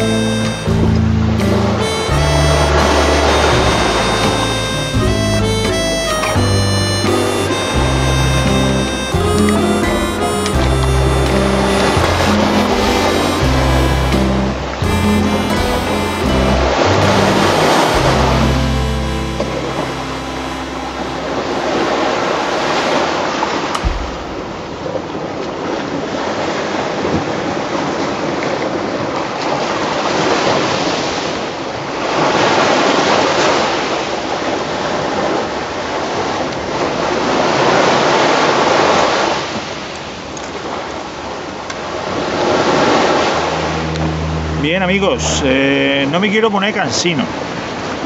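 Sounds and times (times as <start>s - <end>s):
sea surf washing on shore: 0.0s - 6.4s, 7.0s - 48.0s
sharp knock: 23.8s - 24.6s.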